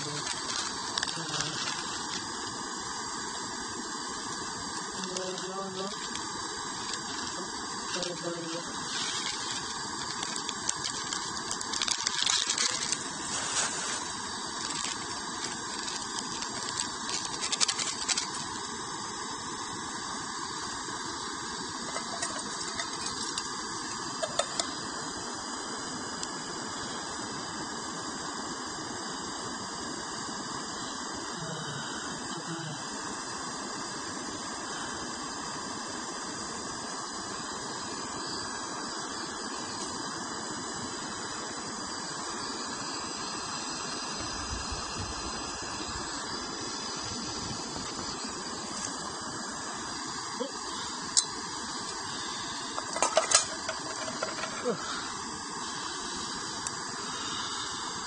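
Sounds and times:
packet rustling and crinkling: 0.0 - 2.4, 5.0 - 18.6, 21.9 - 23.5, 24.1 - 24.7, 52.8 - 54.8
gas stove burner hissing: 0.0 - 58.0.

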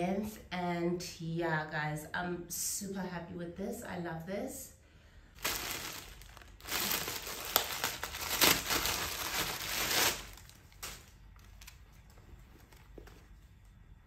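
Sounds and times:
packaging rustling and crinkling: 5.4 - 13.4.

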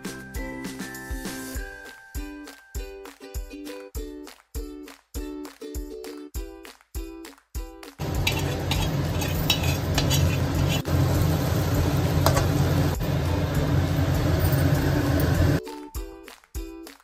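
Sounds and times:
steel spoon scraping a pan: 8.0 - 11.1
vegetables sizzling in pan: 8.0 - 15.6.

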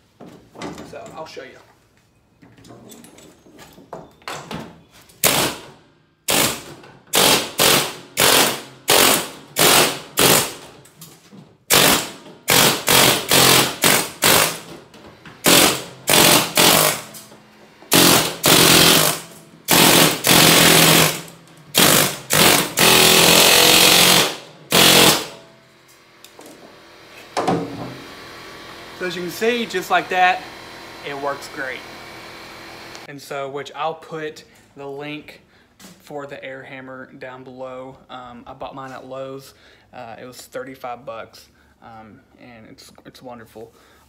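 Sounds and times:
pneumatic air hammer on steel rivets: 5.2 - 10.6, 11.7 - 14.7, 15.4 - 17.3, 17.9 - 25.4.

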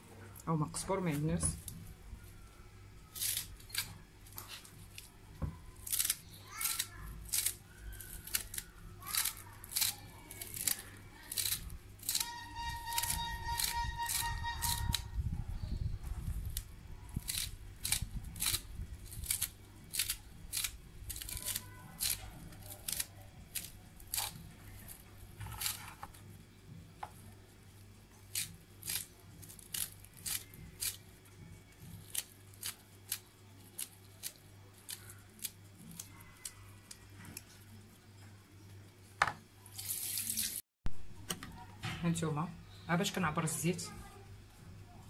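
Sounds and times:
scissors snipping herbs: 5.8 - 15.1, 16.5 - 25.9, 28.3 - 31.0, 31.9 - 37.5.

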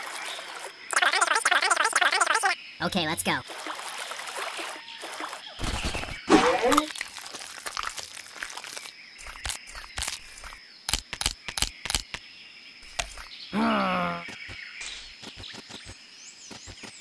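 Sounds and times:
sharp clicks and crunches: 6.7 - 12.2.

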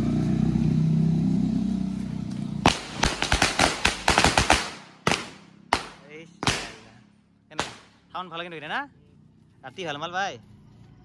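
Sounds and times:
firecracker cracks: 2.6 - 6.9, 7.5 - 8.0.

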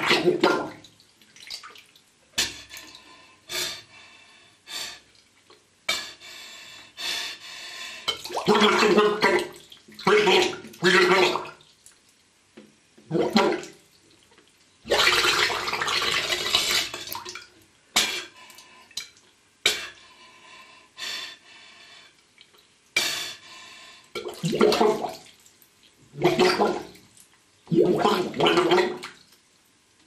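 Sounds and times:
bathwater bubbling and gurgling: 0.0 - 1.6, 8.2 - 11.7, 13.0 - 13.9, 14.8 - 17.4, 24.2 - 25.4, 26.0 - 27.1, 27.7 - 29.2.

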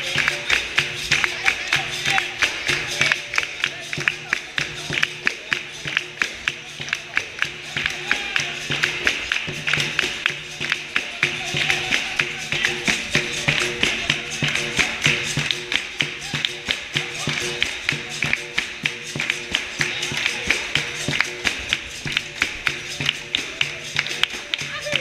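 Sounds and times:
fast hand claps: 0.0 - 25.0.

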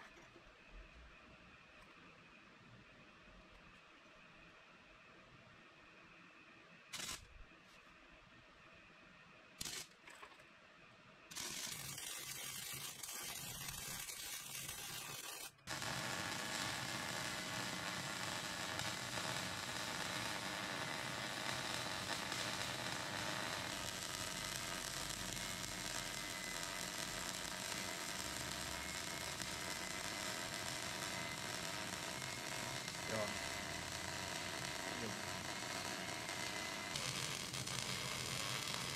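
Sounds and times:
welding arc crackling and sizzling: 6.9 - 7.3, 9.6 - 10.0, 11.3 - 38.9.

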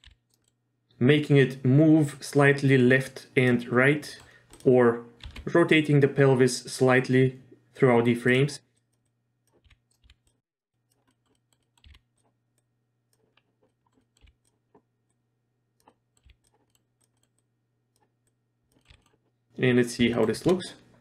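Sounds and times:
computer keyboard and mouse clicks: 0.0 - 0.6, 4.2 - 5.5, 8.8 - 15.2, 15.8 - 19.3.

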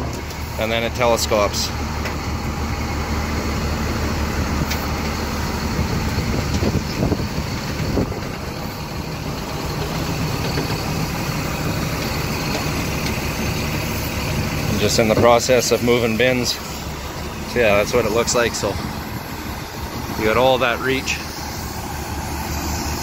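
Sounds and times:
diesel engine running: 0.0 - 23.0.

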